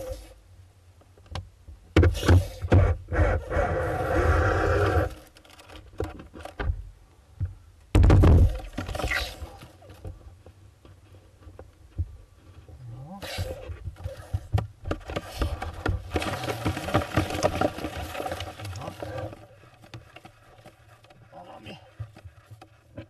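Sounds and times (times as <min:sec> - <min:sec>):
loud thump: 0:07.9 - 0:08.6
knocks and scrapes in wooden box: 0:10.9 - 0:23.0.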